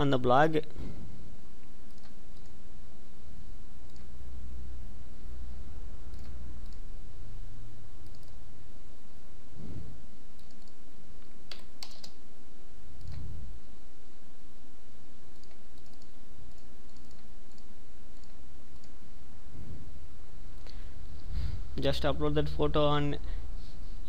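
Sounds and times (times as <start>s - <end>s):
steady low hum: 0.0s - 24.0s
computer mouse clicks: 1.8s - 2.6s, 3.8s - 4.2s, 6.1s - 6.9s, 8.0s - 8.4s, 10.3s - 10.8s, 11.5s - 12.2s, 13.0s - 13.3s, 15.3s - 19.0s
keyboard typing: 1.8s - 2.6s, 8.0s - 8.4s, 10.3s - 10.8s, 11.5s - 12.2s, 15.3s - 19.0s.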